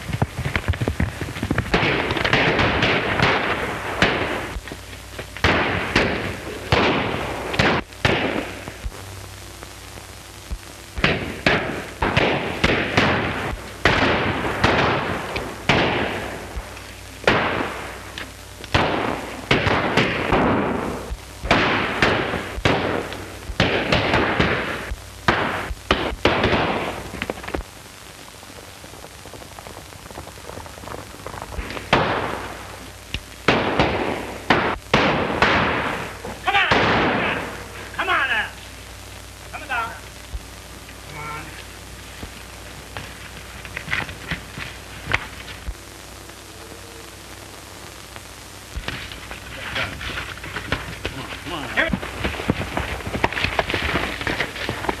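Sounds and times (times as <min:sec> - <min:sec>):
echoing gunshots: 0:00.8 - 0:04.6, 0:05.4 - 0:08.9, 0:11.0 - 0:27.4, 0:31.3 - 0:32.8, 0:33.4 - 0:38.6.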